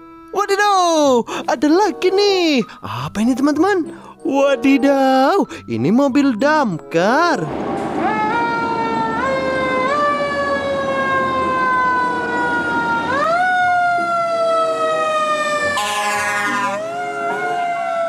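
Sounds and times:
fire truck siren wailing: 7.4 - 18.0.

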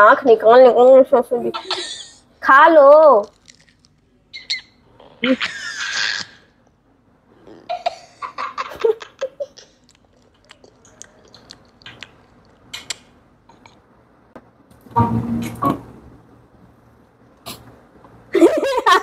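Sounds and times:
child shrieking laugh: 5.2 - 6.5.

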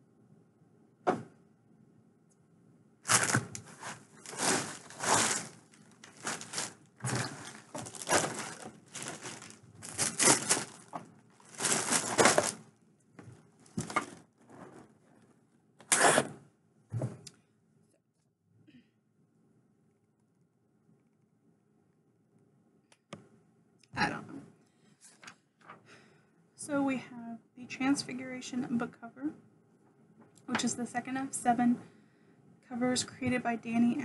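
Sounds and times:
packaging crinkling and rustling: 3.1 - 12.7, 13.6 - 15.1.

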